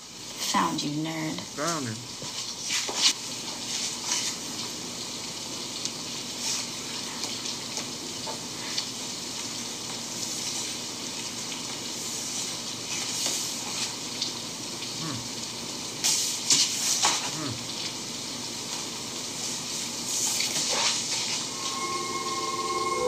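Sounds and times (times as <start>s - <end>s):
steady hiss: 1.5s - 17.3s.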